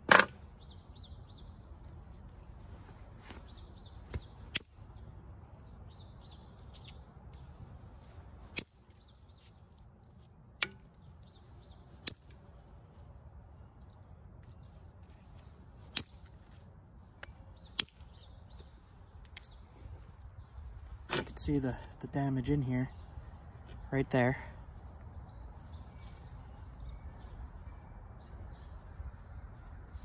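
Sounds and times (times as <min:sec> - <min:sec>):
small birds chirping: 0:00.4 - 0:30.0
sharp clicks of stone knapping: 0:12.0 - 0:12.4, 0:15.9 - 0:16.4, 0:17.2 - 0:18.2.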